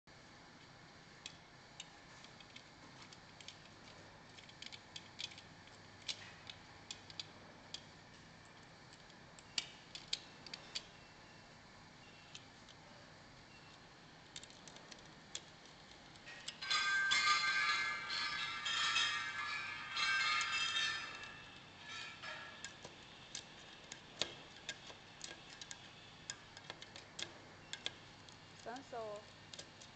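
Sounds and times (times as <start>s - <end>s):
hand tools clicking and tapping: 1.2s - 7.9s, 14.3s - 28.8s, 29.4s - 29.9s.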